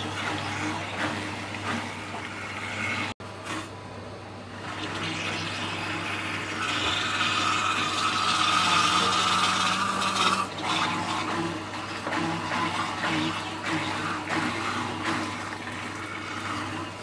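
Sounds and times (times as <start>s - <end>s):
electric grinder motor: 4.8s - 17.0s.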